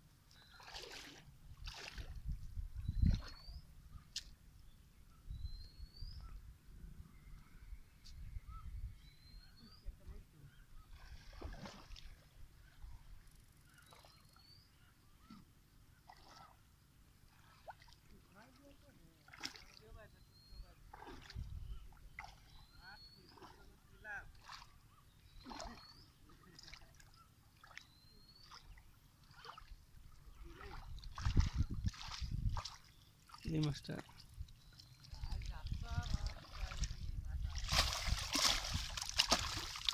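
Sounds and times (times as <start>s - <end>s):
water swishing: 0.4s - 2.3s, 10.8s - 13.1s, 16.0s - 39.9s
wind rumbling on microphone: 1.4s - 4.1s, 5.2s - 11.5s, 20.8s - 22.2s, 30.0s - 32.8s, 34.3s - 39.9s
small birds chirping: 2.7s - 11.2s, 12.6s - 16.6s, 17.4s - 39.9s.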